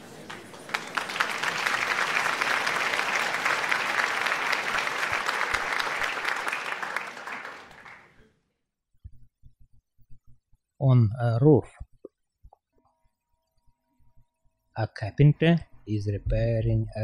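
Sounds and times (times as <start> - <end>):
audience applause: 0.0 - 8.2.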